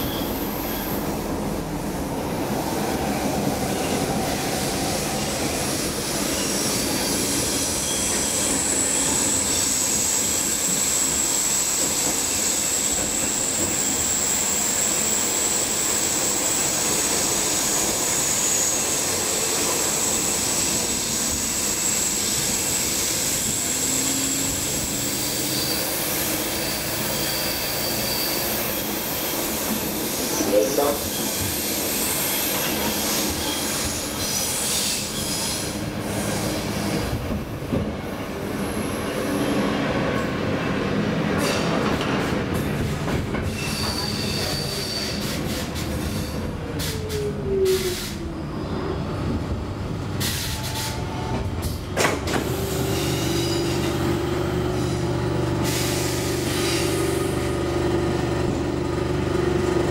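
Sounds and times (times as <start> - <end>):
subway car wheels rumbling: 0.0 - 59.9
high-pitched wheel squeal: 19.9 - 29.5, 43.5 - 45.4.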